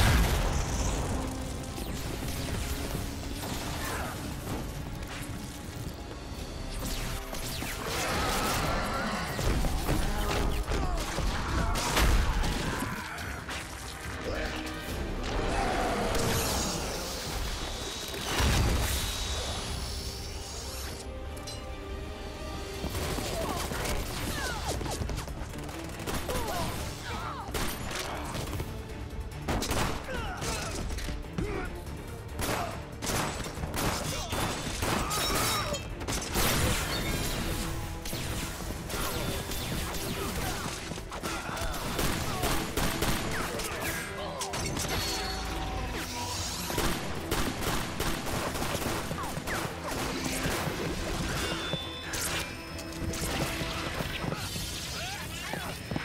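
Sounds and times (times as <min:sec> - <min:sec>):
music: 0:00.0 - 0:56.0
rapid gunfire: 0:22.9 - 0:28.8, 0:37.9 - 0:43.8, 0:46.7 - 0:51.2.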